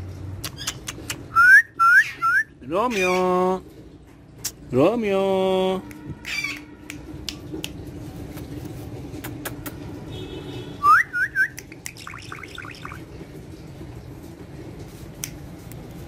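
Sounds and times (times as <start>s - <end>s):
parakeet whistling and chattering: 0.4s - 3.4s, 6.2s - 6.7s, 10.8s - 13.0s.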